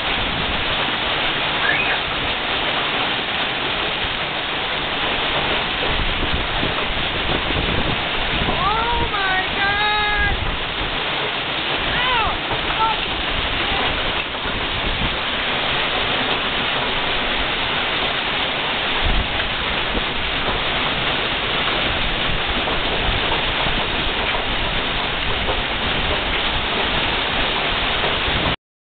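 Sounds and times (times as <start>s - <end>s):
hail and rain drumming: 0.0s - 28.6s.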